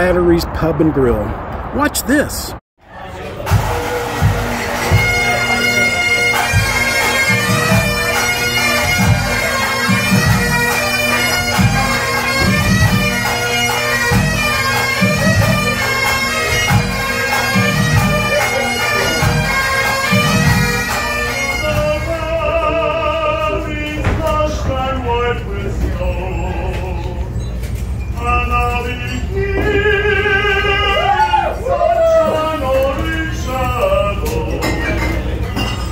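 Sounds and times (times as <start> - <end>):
bagpipes playing a tune: 3.6 - 22.1.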